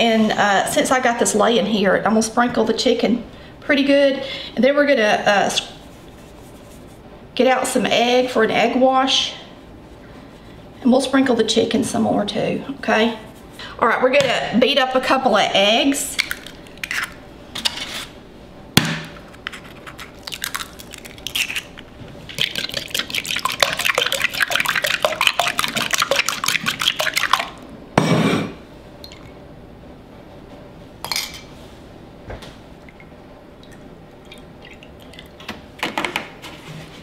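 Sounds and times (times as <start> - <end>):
egg cracking: 16.2 - 17.2, 19.4 - 27.6.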